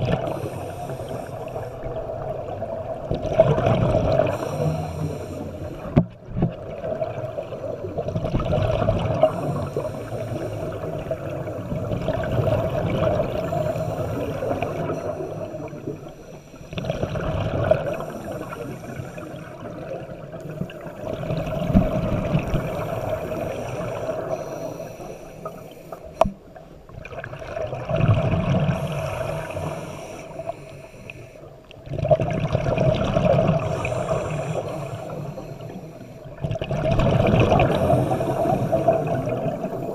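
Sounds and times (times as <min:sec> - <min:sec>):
diver regulator breathing underwater: 0:00.0 - 0:02.2, 0:03.4 - 0:06.0, 0:09.0 - 0:26.3, 0:28.6 - 0:31.5, 0:33.2 - 0:39.9
rushing exhaled bubbles: 0:00.0 - 0:16.1, 0:16.7 - 0:24.3, 0:27.0 - 0:29.8, 0:31.8 - 0:35.4, 0:36.3 - 0:39.9.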